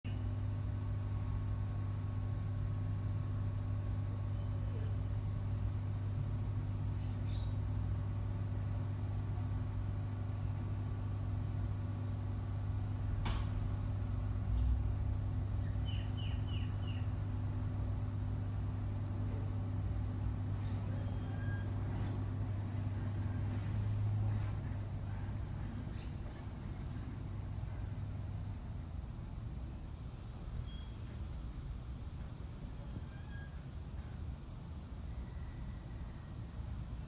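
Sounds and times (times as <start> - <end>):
low vehicle hum: 0.0 - 37.0
short bird chirps: 7.0 - 7.6, 15.6 - 17.1.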